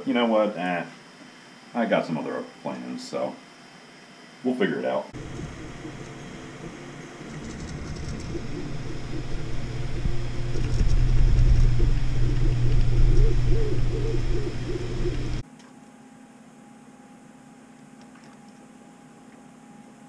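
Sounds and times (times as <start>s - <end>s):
low rumble: 5.2s - 15.4s
stepper motors whirring: 5.2s - 15.4s.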